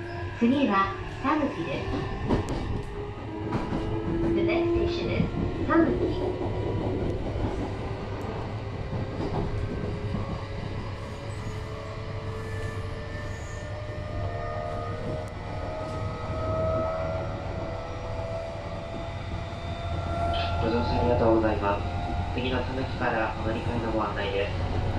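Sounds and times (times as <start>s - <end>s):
wheels rumbling on rail: 0.0s - 24.9s.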